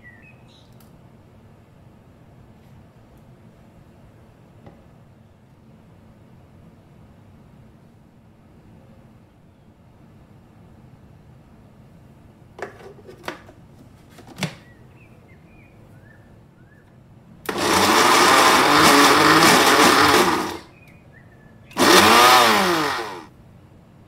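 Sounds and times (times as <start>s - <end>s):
blender motor running: 17.5s - 20.7s, 21.8s - 23.3s.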